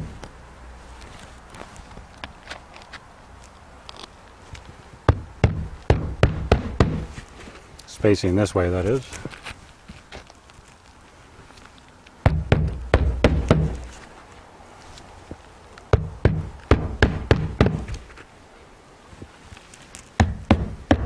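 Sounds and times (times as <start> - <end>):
shingle thudding and scraping: 5.0 - 7.6, 12.2 - 14.2, 15.9 - 18.2, 20.1 - 21.0
hammer knocking roofing nails: 5.1 - 7.1, 12.3 - 13.8, 16.0 - 18.0, 20.2 - 21.0.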